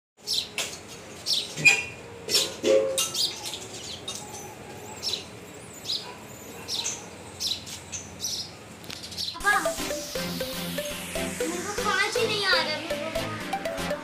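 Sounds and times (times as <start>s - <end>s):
small birds chirping: 0.2s - 2.0s, 3.0s - 10.6s.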